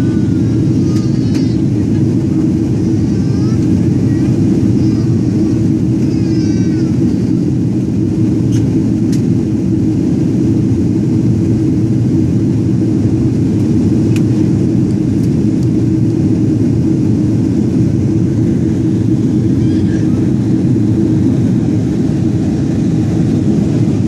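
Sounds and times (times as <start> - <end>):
jet airliner cabin rumble: 0.0 - 24.0.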